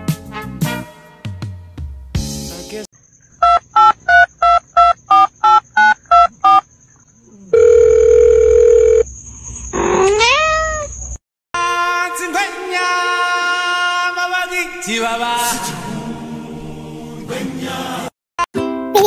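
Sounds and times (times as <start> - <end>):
cat meowing: 9.9 - 11.0.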